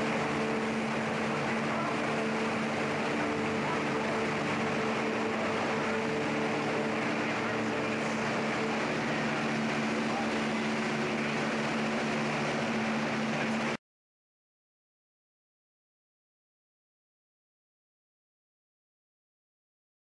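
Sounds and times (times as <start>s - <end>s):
machinery rushing noise: 0.0s - 13.8s.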